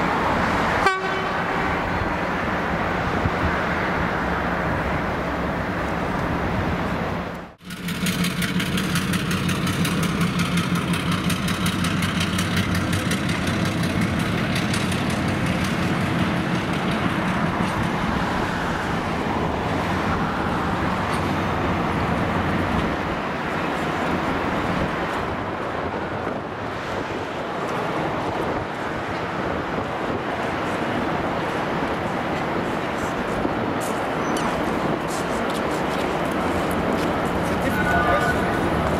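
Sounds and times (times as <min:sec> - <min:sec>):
diesel locomotive engine running: 0:07.4 - 0:26.8, 0:27.4 - 0:38.9.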